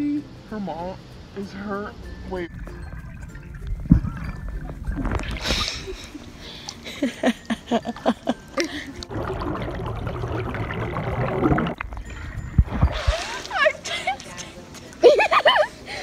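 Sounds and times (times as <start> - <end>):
rush of bubbles underwater: 9.0 - 12.0
underwater bubbling gurgles: 9.0 - 13.0.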